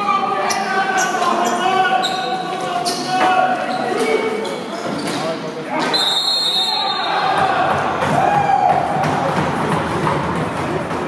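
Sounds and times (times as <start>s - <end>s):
spectators cheering and chanting: 6.6s - 10.4s.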